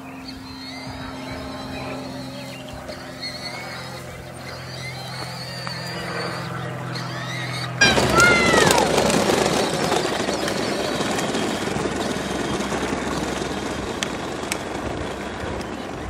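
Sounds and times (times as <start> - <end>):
ride-on toy car driving on asphalt: 0.0 - 16.0
child crying: 7.1 - 9.1.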